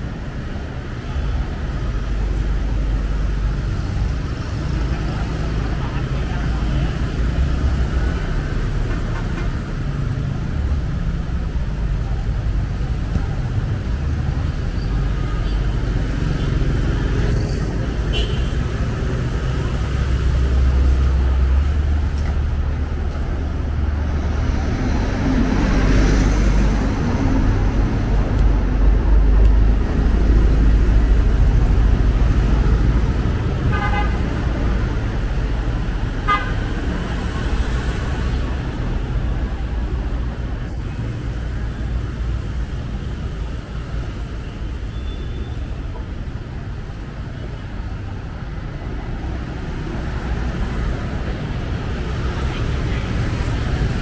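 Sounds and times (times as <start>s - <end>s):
motorbikes and cars passing: 0.0s - 54.0s
horn honking: 18.1s - 18.6s, 33.7s - 34.3s, 36.2s - 36.6s.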